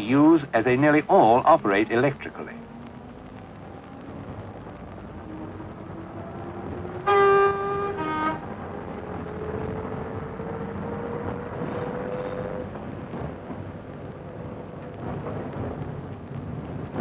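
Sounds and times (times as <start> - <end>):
train diesel engines accelerating: 0.0 - 17.0
train horn: 6.9 - 8.9, 11.6 - 12.8.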